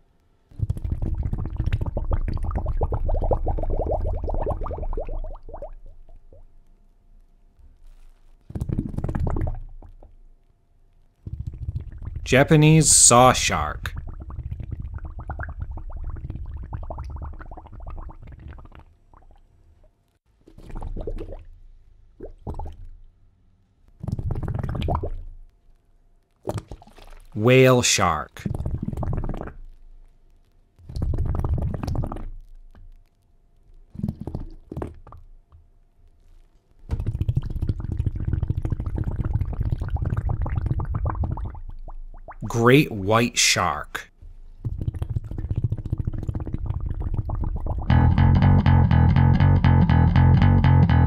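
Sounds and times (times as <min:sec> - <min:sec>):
underwater bubbles gurgling: 0:00.6 - 0:06.4, 0:08.6 - 0:10.0, 0:13.8 - 0:19.4, 0:37.0 - 0:42.4, 0:44.6 - 0:47.9.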